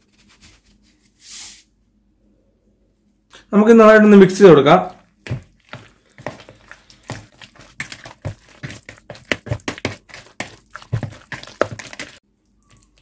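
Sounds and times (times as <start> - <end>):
hand squishing meat in paste: 4.7 - 13.0.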